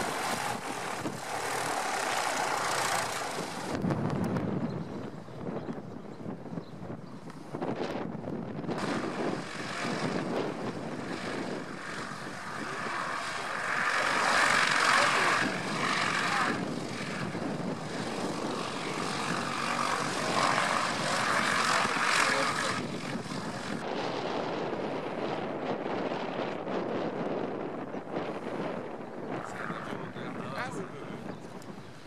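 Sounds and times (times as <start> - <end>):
light plane engine taxiing: 8.8 - 23.8.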